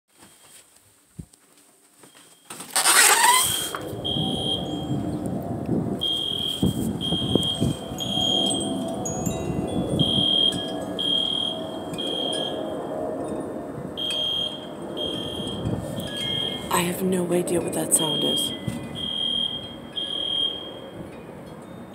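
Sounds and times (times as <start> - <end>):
high-pitched electronic alarm beeping: 3.2 - 5.2, 6.0 - 8.8, 10.0 - 12.9, 14.0 - 16.7, 18.0 - 20.9
loud rush of noise: 3.2 - 17.0.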